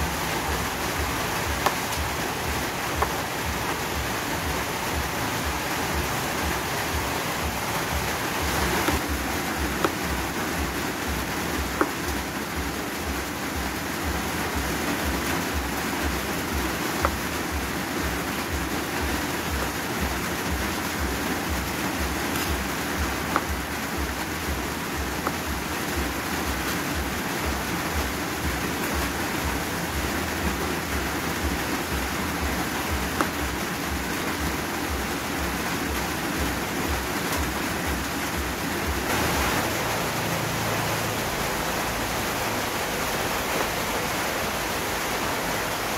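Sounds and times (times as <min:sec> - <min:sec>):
steady rain: 0:00.0 - 0:45.9
knife tapping plastic cutting board: 0:01.6 - 0:01.9, 0:22.3 - 0:23.6.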